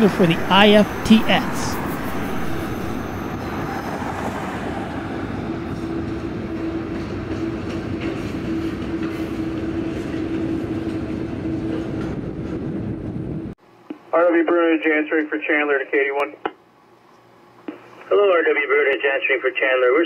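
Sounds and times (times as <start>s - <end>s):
steady low whine: 0.0s - 6.6s
train wheels on rails: 0.0s - 13.3s.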